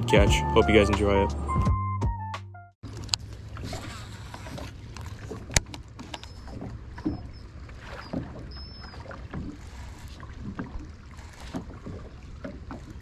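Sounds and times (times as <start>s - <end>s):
water lapping against hull: 2.8s - 13.0s.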